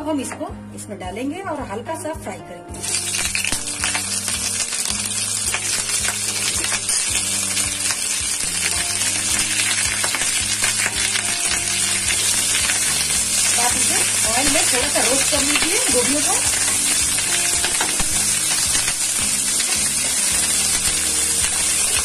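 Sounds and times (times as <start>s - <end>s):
vegetables sizzling in oil: 2.8s - 22.0s
crackles and pops in oil: 8.6s - 19.8s.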